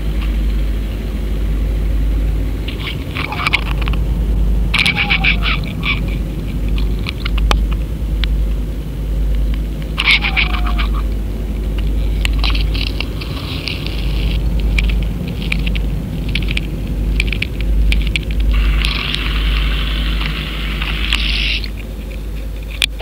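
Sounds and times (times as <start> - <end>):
weeds scraping camera: 2.6 - 7.8, 11.8 - 23.0.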